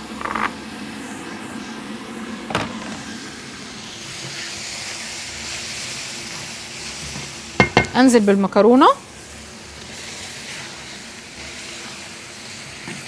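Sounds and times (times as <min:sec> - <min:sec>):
sauce sizzling in a wok: 0:03.1 - 0:13.0.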